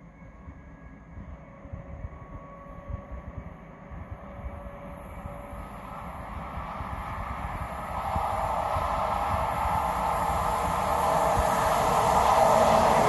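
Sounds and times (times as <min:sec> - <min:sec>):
faint steady whine: 0:00.0 - 0:13.0
train rumbling in tunnel: 0:00.0 - 0:13.0.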